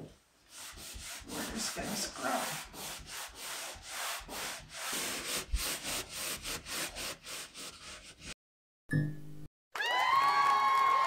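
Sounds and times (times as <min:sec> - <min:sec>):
cloth scrubbing against drywall: 0:00.4 - 0:08.4.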